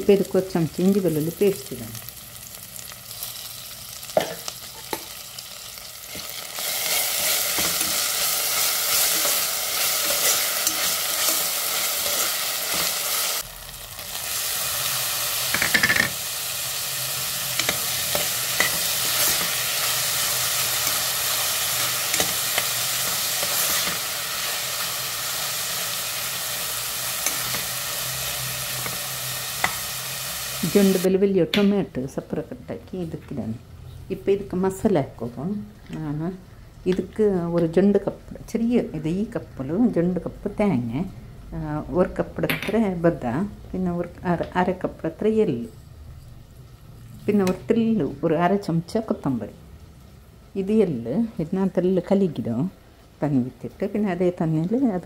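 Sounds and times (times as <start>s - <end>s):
onions sizzling in oil: 0.0s - 31.1s
spoon stirring and scraping: 6.1s - 13.3s, 17.5s - 24.1s.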